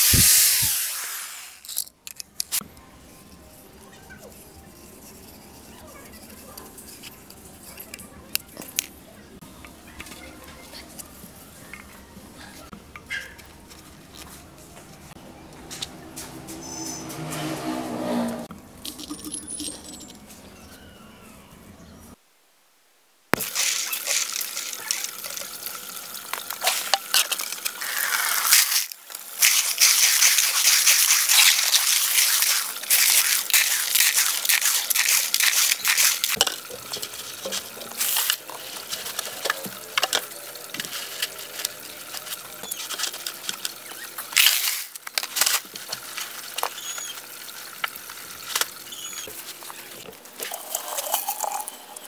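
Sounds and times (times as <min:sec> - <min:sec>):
rustling: 0:26.6 - 0:40.0.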